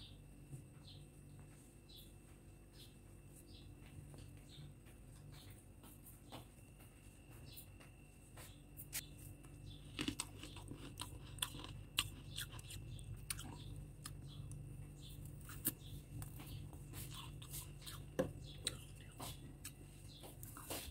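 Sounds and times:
chewing crunchy frost: 8.9s - 20.9s.

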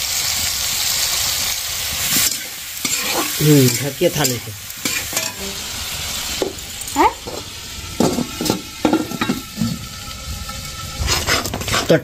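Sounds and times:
tomatoes sizzling in oil: 0.0s - 12.0s
metal lid scraping pan: 10.6s - 12.0s.

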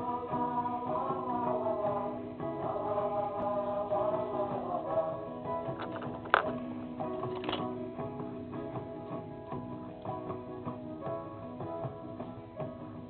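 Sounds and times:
song with singing: 0.0s - 9.3s.

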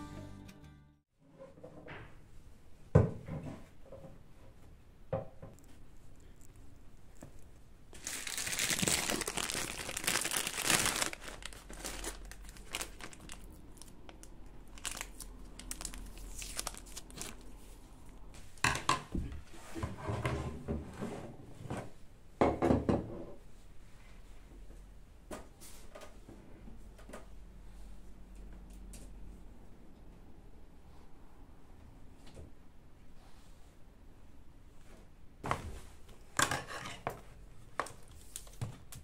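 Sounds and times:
adhesive tape crinkling: 7.9s - 17.6s.

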